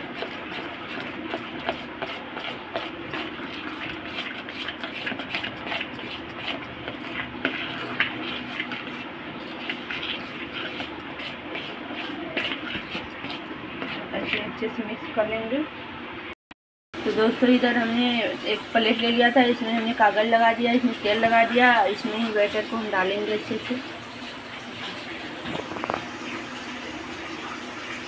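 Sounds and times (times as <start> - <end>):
spoon scraping steel bowl: 0.0 - 15.1.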